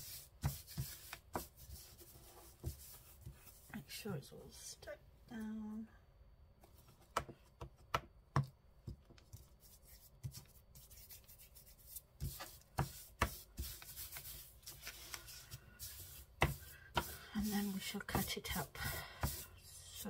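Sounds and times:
hands rubbing paper: 0:00.0 - 0:03.7, 0:09.2 - 0:20.0
hands tapping paper: 0:16.4 - 0:17.2.

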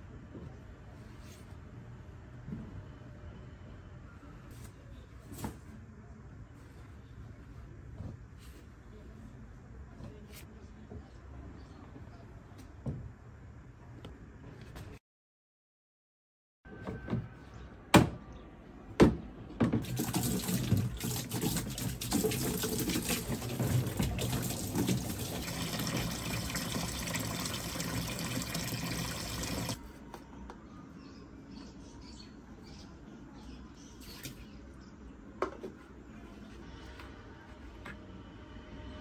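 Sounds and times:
water running: 0:19.8 - 0:29.8.

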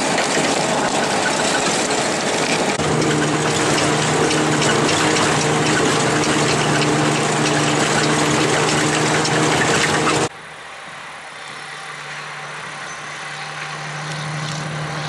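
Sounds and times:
truck engine running: 0:00.0 - 0:10.3.

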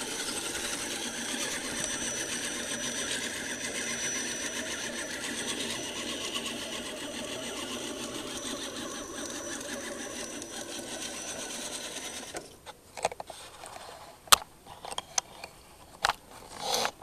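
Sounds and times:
electric motor whining: 0:00.0 - 0:12.6.

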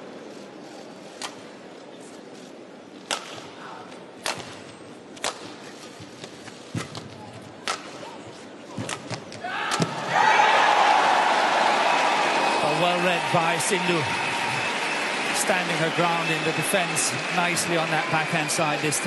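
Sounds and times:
crowd cheering and applauding: 0:09.8 - 0:19.0.

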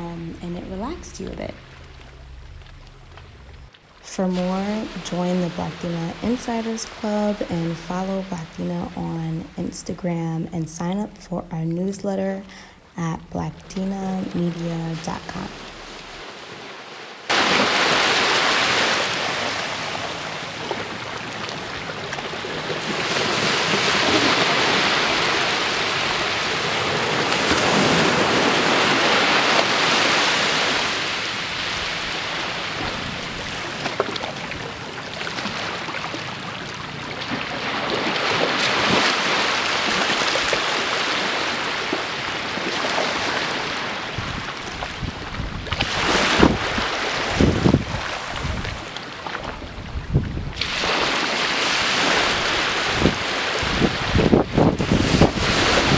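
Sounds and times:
small waves breaking on beach: 0:14.1 - 0:55.9
wind buffeting microphone: 0:44.0 - 0:51.0, 0:51.8 - 0:55.9.

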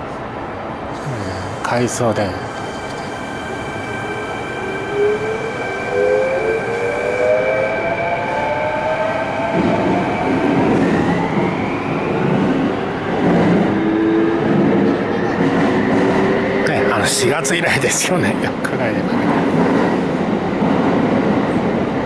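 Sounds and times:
wheels rumbling on rails: 0:01.0 - 0:07.0.

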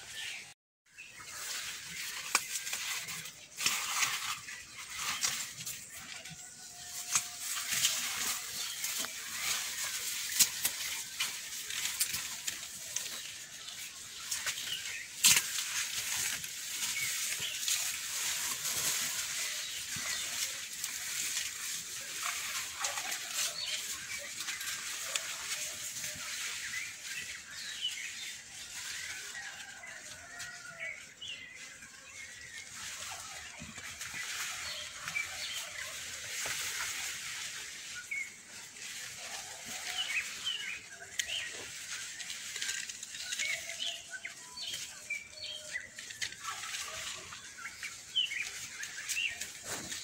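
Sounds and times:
dry leaves rustling: 0:00.0 - 0:50.0
sharp snaps of stalks: 0:02.2 - 0:02.9, 0:14.3 - 0:18.6.

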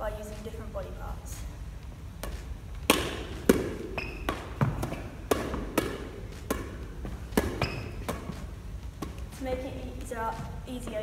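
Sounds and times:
hand slapping ball: 0:02.2 - 0:10.1.

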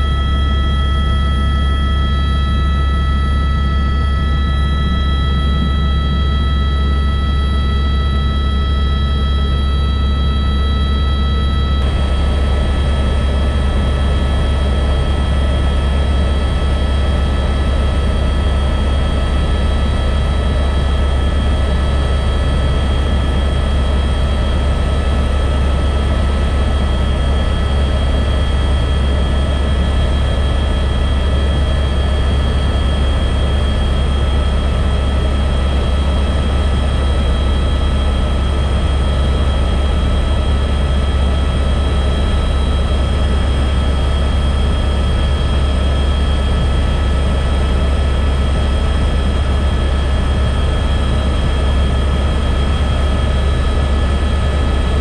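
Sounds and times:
high whine tones: 0:00.0 - 0:21.6
helicopter engine and rotor drone: 0:00.0 - 0:55.0.

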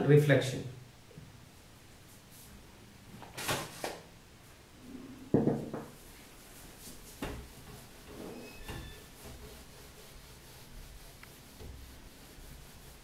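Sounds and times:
duster rubbing on whiteboard: 0:06.0 - 0:13.0.

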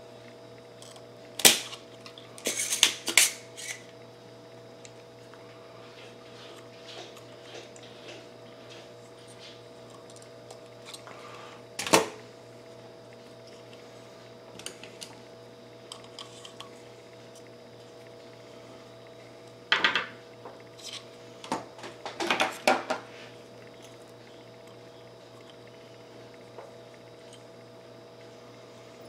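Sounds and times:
faint steady hum: 0:00.0 - 0:29.0
desoldering pump snap: 0:00.8 - 0:01.8.

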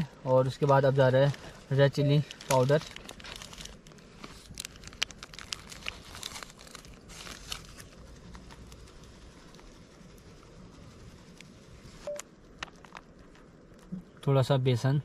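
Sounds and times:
spice packets crinkling: 0:00.4 - 0:13.9.

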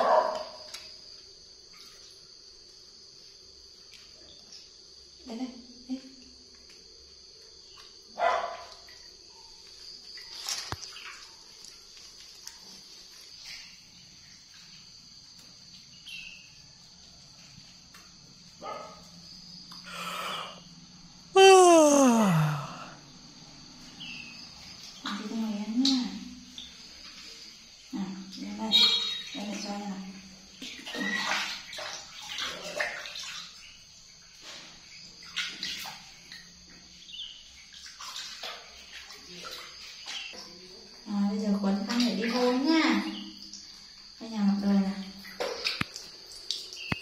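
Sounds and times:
water splashing in metal basin: 0:28.2 - 0:33.8, 0:34.7 - 0:36.4, 0:37.5 - 0:40.8, 0:41.6 - 0:43.9, 0:45.0 - 0:47.0.

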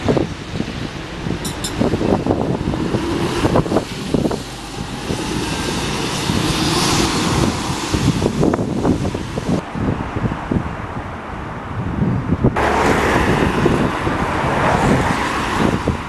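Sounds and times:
diesel bus engine accelerating: 0:00.0 - 0:09.6
wind buffeting microphone: 0:00.0 - 0:16.0.

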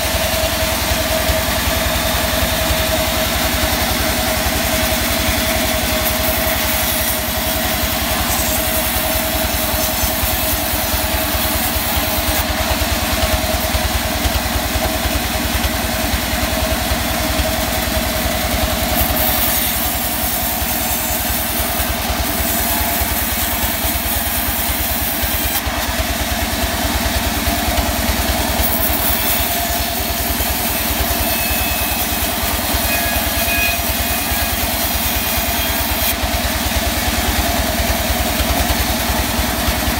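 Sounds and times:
band sawmill machine drone: 0:00.0 - 0:39.9
high sawing hiss: 0:04.8 - 0:12.5, 0:18.9 - 0:25.6, 0:28.6 - 0:36.2.

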